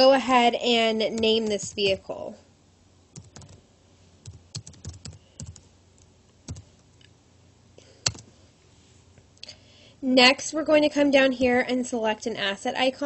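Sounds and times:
typing on computer keyboard: 3.2s - 3.6s, 4.2s - 5.7s, 6.5s - 6.7s, 8.0s - 8.2s.

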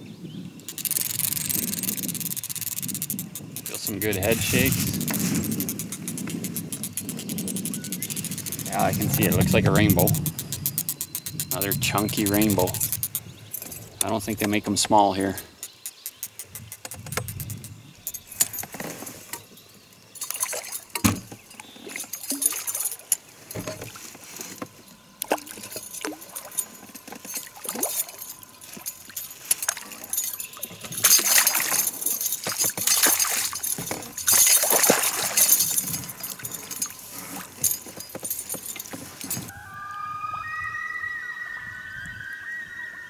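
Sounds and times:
fishing tackle clicking and rattling: 0.6s - 39.5s
fish splashing at water surface: 31.0s - 31.8s, 32.5s - 35.7s.

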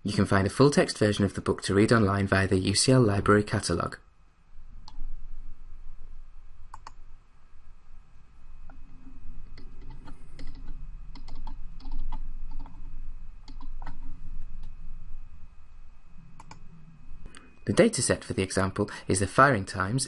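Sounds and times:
computer mouse and keyboard clicks: 6.7s - 7.0s, 9.4s - 14.7s, 16.4s - 16.6s.

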